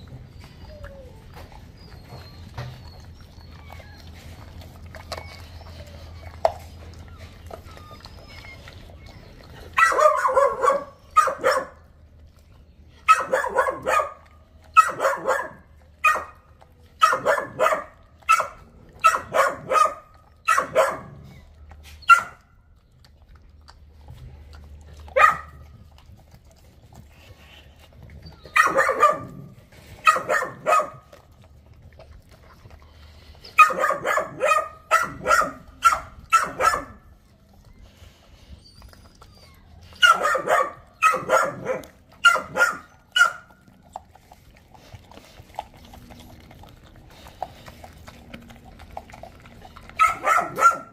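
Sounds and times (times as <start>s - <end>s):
dog barking: 9.7s - 11.8s, 13.1s - 16.4s, 17.0s - 21.2s, 22.1s - 22.4s, 25.1s - 25.6s, 28.6s - 29.4s, 30.0s - 31.1s, 33.6s - 37.0s, 40.0s - 43.5s, 50.0s - 50.9s.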